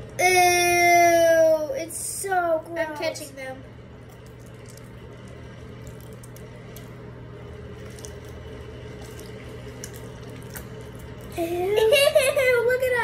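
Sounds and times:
steady low hum: 0.0s - 13.0s
wet squelches of water beads: 3.9s - 11.5s.

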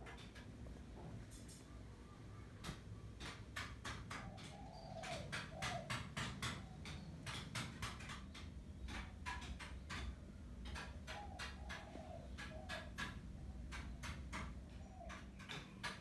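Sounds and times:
dove cooing: 4.1s - 7.7s, 10.7s - 14.1s.

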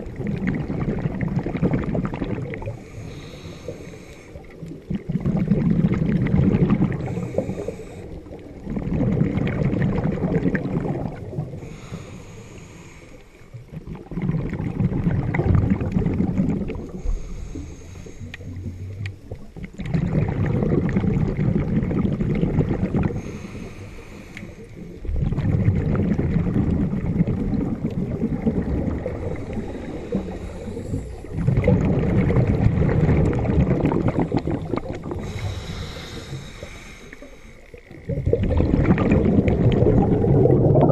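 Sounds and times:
bubbling exhalations: 0.0s - 40.9s
regulator inhale hiss: 2.7s - 4.6s, 7.0s - 8.3s, 11.6s - 13.6s, 16.8s - 19.2s, 23.1s - 25.0s, 29.2s - 31.4s, 34.2s - 37.9s.

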